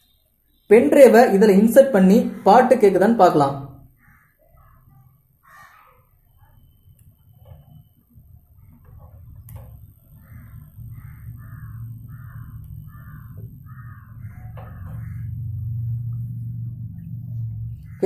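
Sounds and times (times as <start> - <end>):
crow cawing: 3.8 - 6.7, 10.0 - 16.4, 17.6 - 18.0
low steady hum: 6.1 - 18.0.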